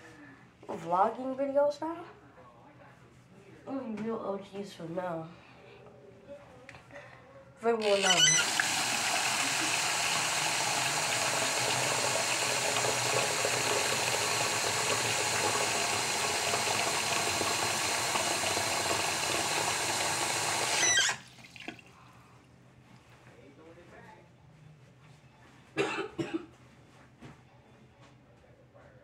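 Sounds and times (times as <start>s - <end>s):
tap water running: 7.8s - 22.0s.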